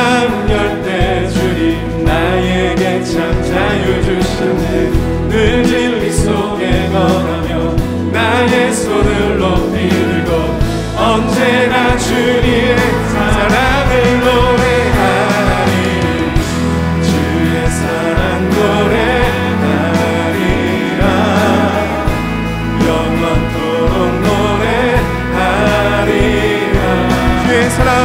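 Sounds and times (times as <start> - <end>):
acoustic guitar and band: 0.0 - 28.0
group singing praise song: 0.0 - 28.0.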